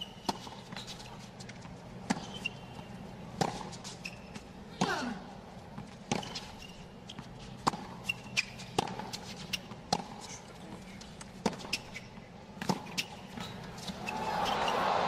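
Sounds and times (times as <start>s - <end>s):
tennis ball bouncing: 1.5s - 5.0s, 7.1s - 10.3s, 11.4s - 12.0s, 12.6s - 15.0s
tennis racquet hitting ball: 13.8s - 15.0s.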